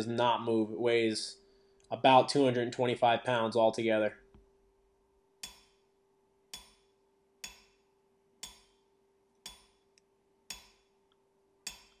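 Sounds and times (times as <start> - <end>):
steel piece clinking on anvil: 8.4 - 8.8, 9.5 - 9.8, 10.5 - 10.9, 11.7 - 12.0.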